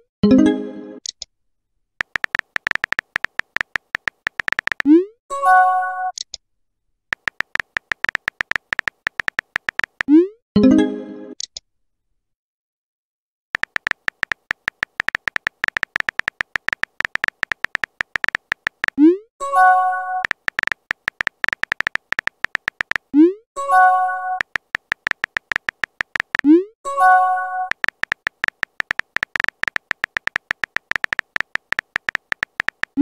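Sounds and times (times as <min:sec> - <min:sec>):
phone keyboard typing clicks: 0:02.0 - 0:04.9, 0:07.2 - 0:10.1, 0:13.6 - 0:19.0, 0:20.2 - 0:23.1, 0:24.4 - 0:26.5, 0:27.7 - 0:33.0.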